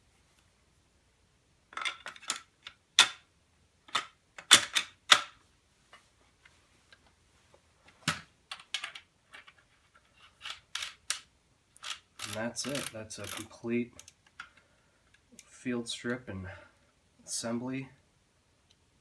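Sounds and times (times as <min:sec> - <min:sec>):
shotgun parts clicking and clacking: 0:01.7 - 0:03.2, 0:03.9 - 0:05.4, 0:08.5 - 0:09.6, 0:10.2 - 0:15.3.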